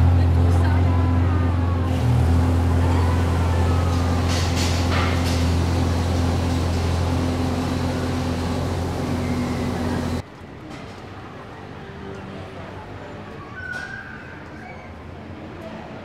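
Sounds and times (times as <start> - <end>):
heavy vehicle engine humming: 0.0 - 10.2.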